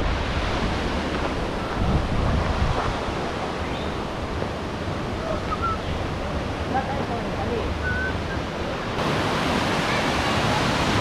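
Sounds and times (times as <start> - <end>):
wind rumbling on microphone: 0.0 - 11.0
river water pouring over weir: 6.1 - 11.0.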